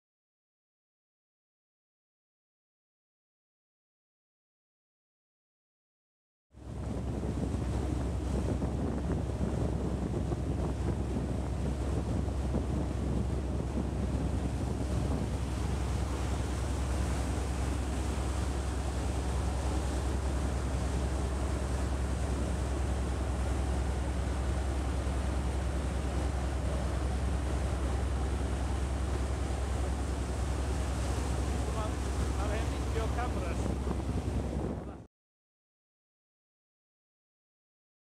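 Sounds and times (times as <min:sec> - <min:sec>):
boat engines droning: 0:06.6 - 0:35.0
sea water rushing: 0:06.6 - 0:35.0
wind buffeting microphone: 0:06.6 - 0:35.1.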